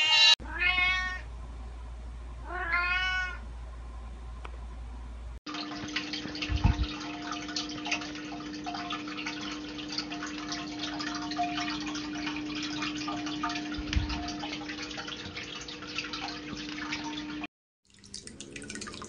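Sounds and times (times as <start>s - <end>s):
steady low hum: 3.4s - 17.5s
water trickling and dripping: 5.5s - 19.0s
soft low thump: 6.5s - 6.9s.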